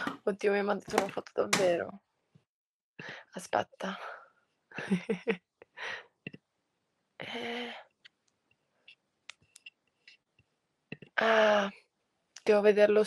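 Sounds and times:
breathy voice sound: 7.2 - 8.0.

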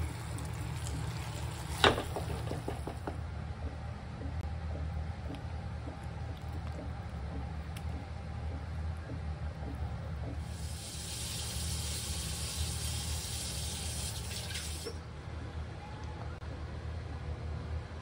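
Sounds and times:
running water hissing: 10.4 - 15.0.

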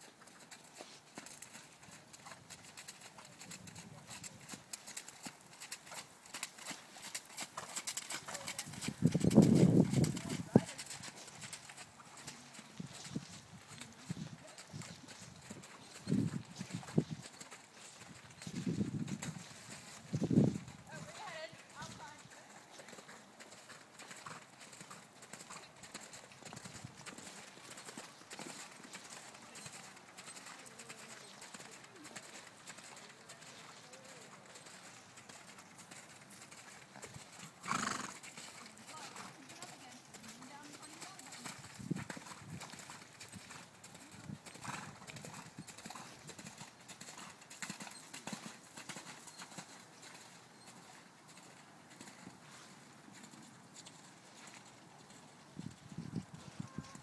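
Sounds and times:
horse hoofbeats on mud: 0.0 - 57.0.

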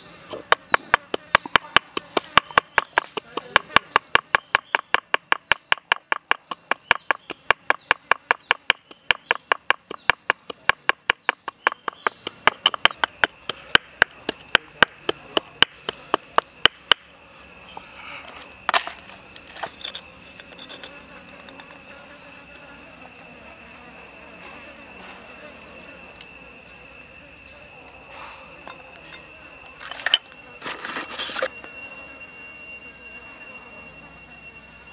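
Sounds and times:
high insect buzz: 0.0 - 34.9
pestle pounding in stone mortar: 0.4 - 16.8.

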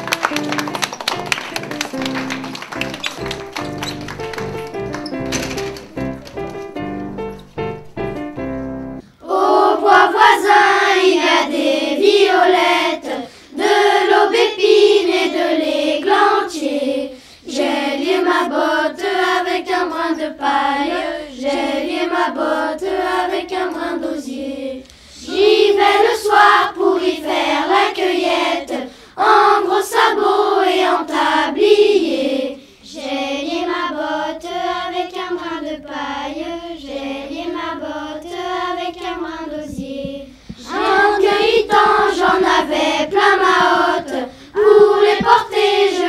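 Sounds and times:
instrumental music: 0.0 - 9.1, 39.0 - 46.0
children's choir singing: 9.0 - 46.0.

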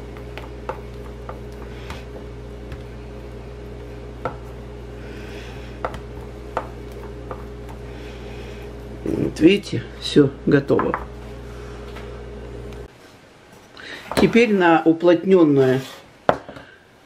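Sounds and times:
dough strands rustling: 0.0 - 10.1
steady low hum: 0.0 - 14.2.

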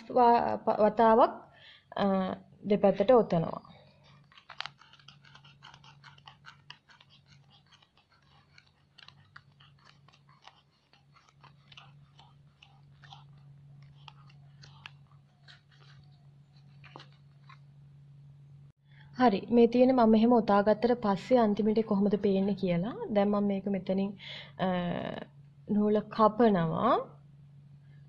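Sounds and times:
steady low hum: 0.0 - 28.0
thread winding ticks and rustles: 4.0 - 17.6.

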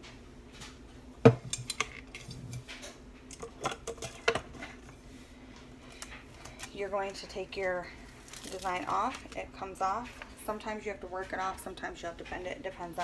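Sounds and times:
tumbler knocking on wood: 1.2 - 1.5.

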